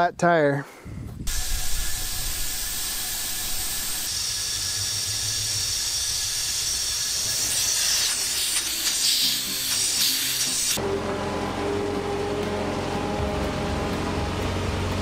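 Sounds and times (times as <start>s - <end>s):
compressed air hissing into tire: 1.3s - 10.8s.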